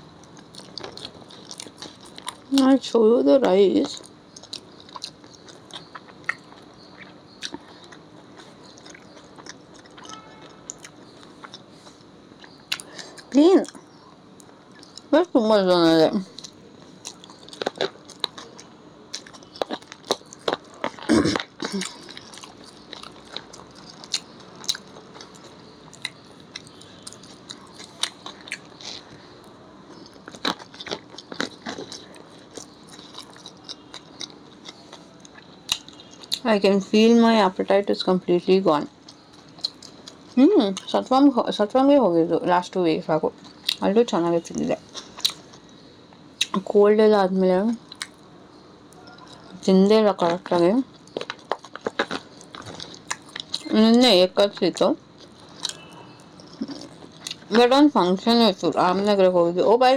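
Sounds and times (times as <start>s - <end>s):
chewing food: 0.1s - 2.7s, 3.4s - 15.2s, 16.2s - 36.5s, 39.0s - 41.0s, 43.3s - 46.6s, 47.8s - 48.2s, 48.9s - 57.8s.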